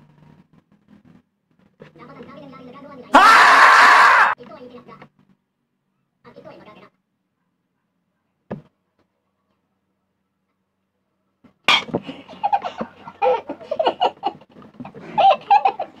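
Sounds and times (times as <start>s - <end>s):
hearty laughter: 12.0s - 16.0s.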